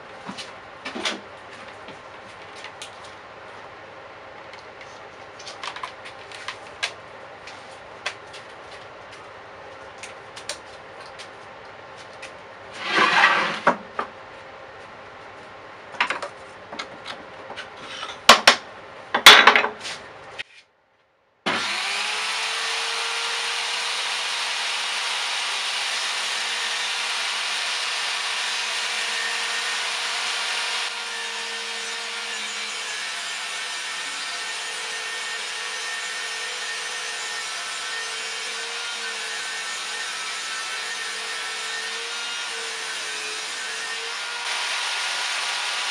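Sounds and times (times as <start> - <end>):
wood scraping: 12.0 - 13.8
table saw motor whine: 21.5 - 45.9.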